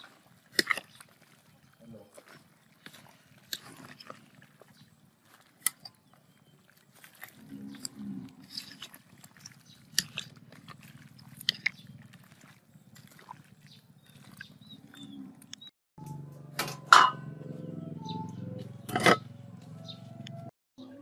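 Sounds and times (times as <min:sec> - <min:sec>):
ladle stirring vegetables in pot: 0:00.0 - 0:15.1
ladle clinking against pot: 0:16.9 - 0:17.2.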